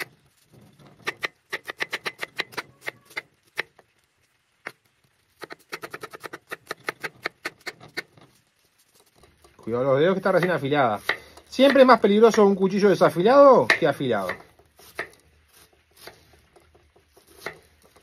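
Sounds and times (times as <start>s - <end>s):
knife chopping on wooden board: 10.4s - 12.0s, 13.6s - 18.0s.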